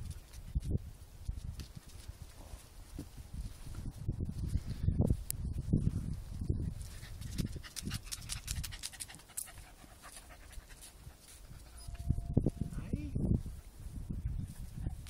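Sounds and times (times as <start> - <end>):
dog panting: 6.8 - 11.9.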